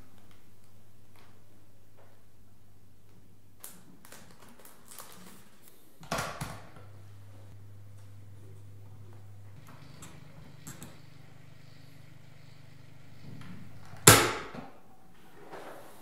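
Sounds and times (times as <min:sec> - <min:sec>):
low steady hum: 0:06.6 - 0:15.3.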